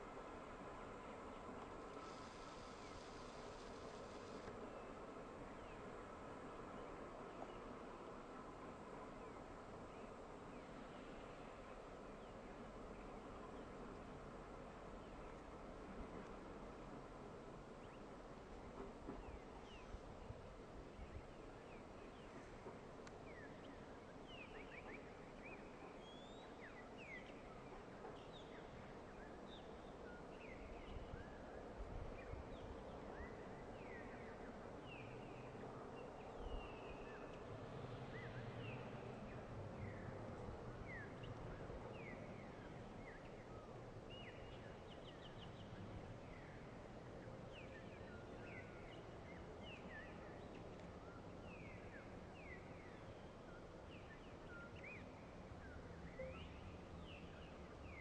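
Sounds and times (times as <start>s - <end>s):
train rumble: 11.4s - 24.0s.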